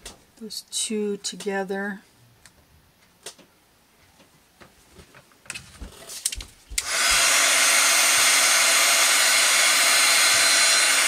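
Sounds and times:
heat tool blowing air: 6.8 - 11.0.

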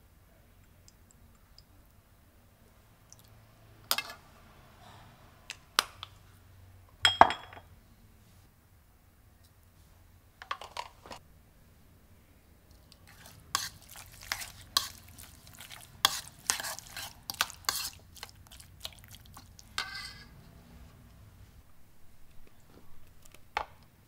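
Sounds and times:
spoon scraping plastic bowl: 13.1 - 18.4, 19.0 - 20.4.

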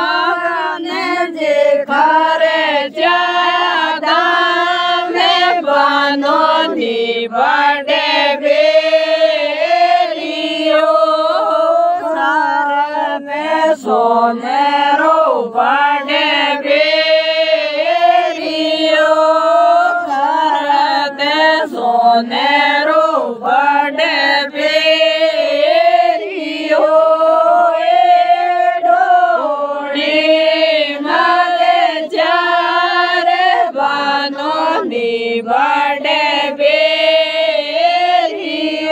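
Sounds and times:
group singing folk song: 0.0 - 38.9.

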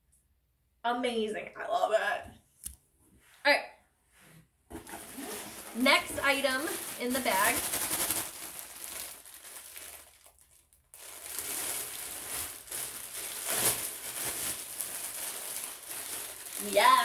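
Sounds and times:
plastic wrapping crinkling: 4.7 - 17.0.

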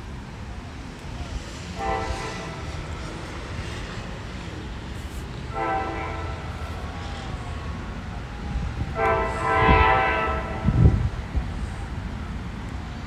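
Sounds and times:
train horn blasts: 1.7 - 3.9, 5.4 - 7.1, 8.6 - 11.1.

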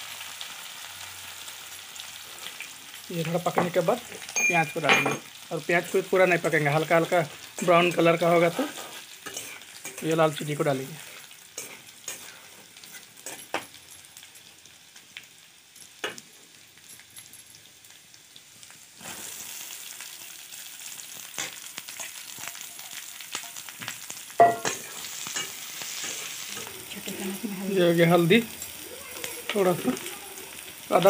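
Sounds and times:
food sizzling in oil: 0.0 - 31.0
spatula scraping and tapping pan: 8.6 - 10.2, 11.6 - 13.8.

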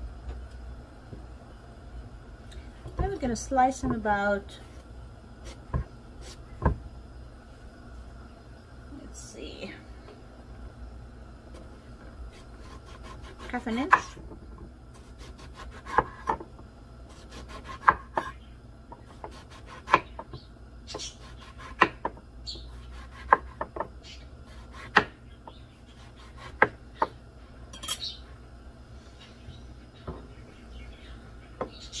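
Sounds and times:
knife scraping through eggplant: 12.3 - 14.2.

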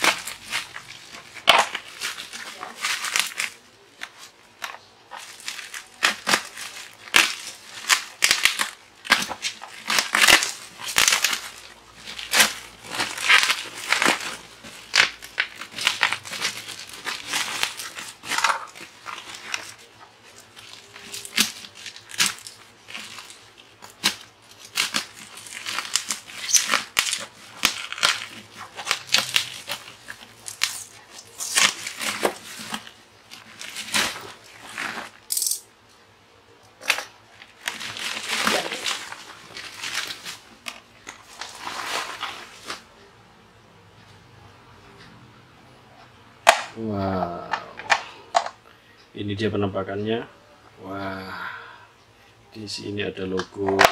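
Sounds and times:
plastic wrap crinkling and tearing: 0.0 - 35.4, 36.8 - 43.0.

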